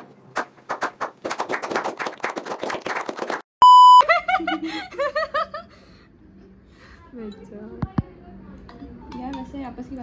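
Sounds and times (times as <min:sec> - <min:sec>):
group applauding: 0:00.0 - 0:03.5
short high bleep tone: 0:03.6 - 0:04.0.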